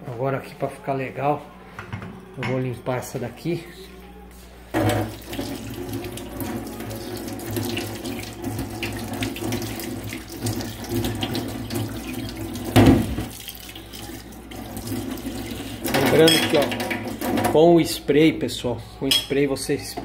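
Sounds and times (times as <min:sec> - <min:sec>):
tap running into sink: 0:04.8 - 0:13.5.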